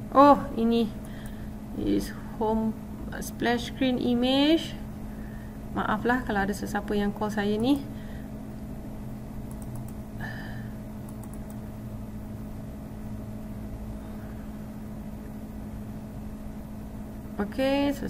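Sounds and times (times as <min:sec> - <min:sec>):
electrical hum: 0:00.0 - 0:18.0
faint clicks: 0:09.5 - 0:10.0, 0:11.1 - 0:11.6.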